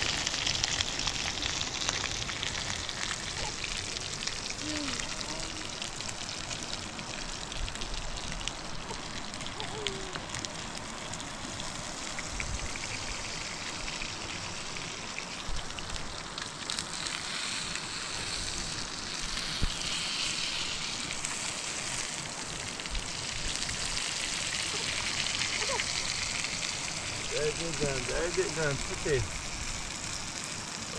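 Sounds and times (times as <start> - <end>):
fire crackling: 0.0 - 30.9
food sizzling in oil: 0.0 - 30.9.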